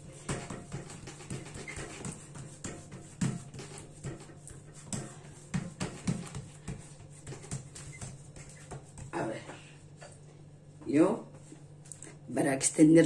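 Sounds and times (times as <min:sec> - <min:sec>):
hands patting dough: 0:00.0 - 0:09.3.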